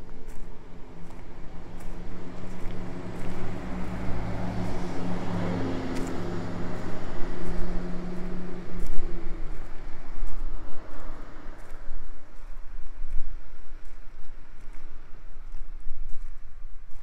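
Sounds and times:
engine running: 0.4s - 12.4s.

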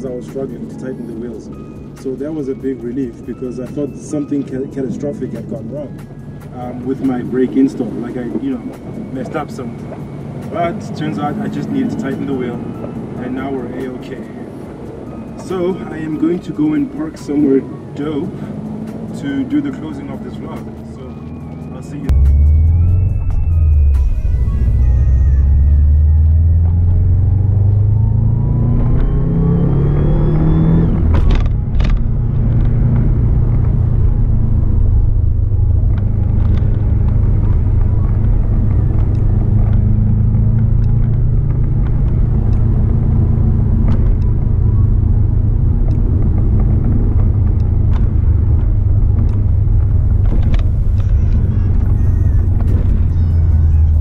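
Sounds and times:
car engine while driving: 0.0s - 54.0s
road noise: 0.0s - 54.0s.

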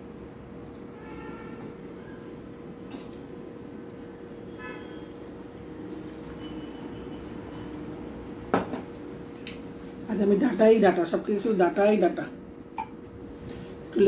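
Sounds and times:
steady hum: 0.0s - 14.0s.

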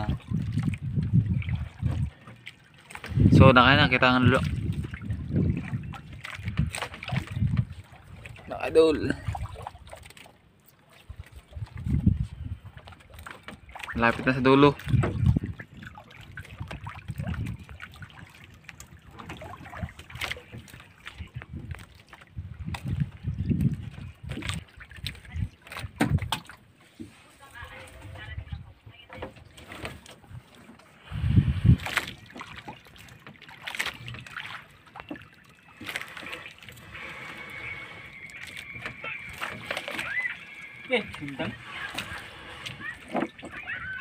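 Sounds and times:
water dripping and splashing: 0.0s - 26.7s, 29.2s - 44.0s
low knocks against boat: 13.4s - 15.6s, 25.7s - 26.6s
fishing net hauled: 29.1s - 44.0s.

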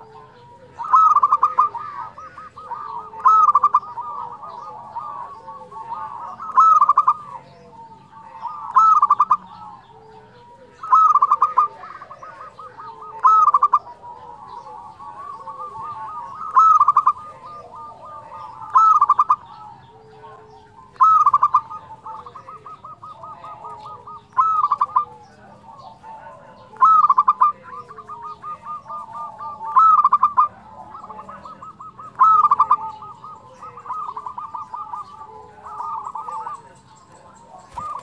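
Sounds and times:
dove cooing: 0.0s - 38.0s.

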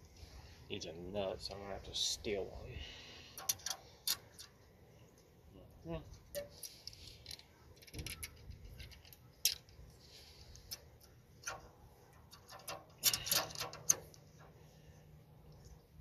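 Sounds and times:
metal clamp clicking and clinking: 3.4s - 4.6s, 6.3s - 9.8s, 10.5s - 14.6s.

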